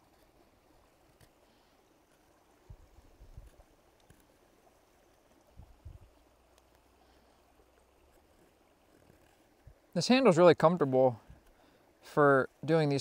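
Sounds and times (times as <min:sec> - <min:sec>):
faint low bumps: 0:02.6 - 0:03.7, 0:05.4 - 0:06.3.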